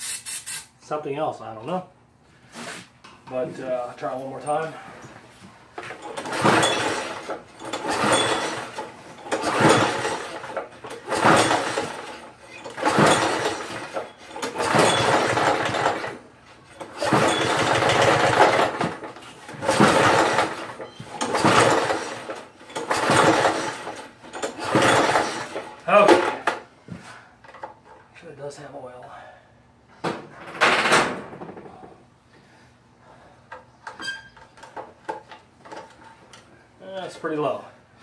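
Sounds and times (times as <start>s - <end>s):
mower engine cranking: 5.8s - 26.6s, 33.8s - 36.5s.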